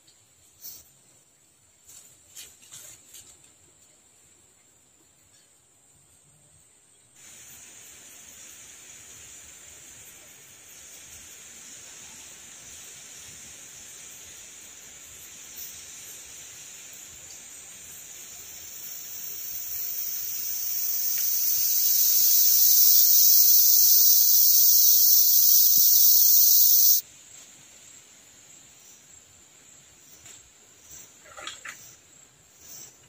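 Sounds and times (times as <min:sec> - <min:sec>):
cicadas buzzing: 0:12.7 - 0:27.0.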